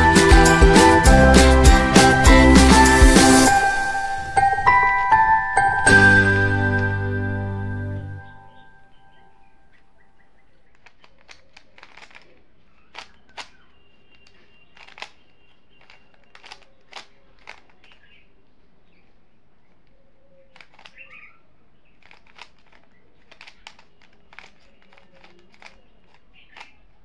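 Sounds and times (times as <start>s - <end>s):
puzzle cube clicking: 10.7s - 18.1s, 20.5s - 21.3s, 21.9s - 26.8s.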